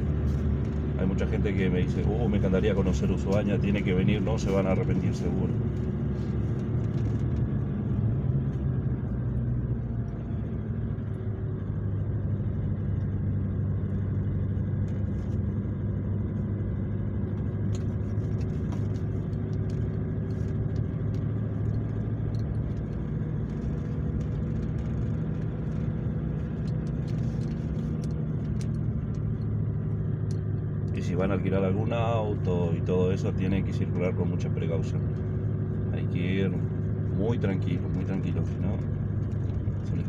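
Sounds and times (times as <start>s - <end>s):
vehicle engine and tyres drone: 0.0s - 40.0s.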